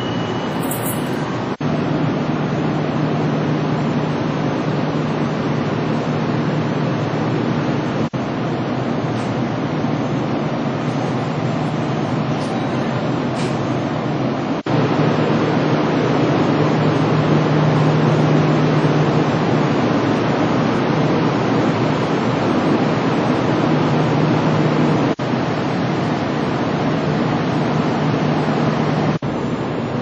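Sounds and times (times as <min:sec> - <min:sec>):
train air-conditioning fans whooshing: 0:00.0 - 0:30.0.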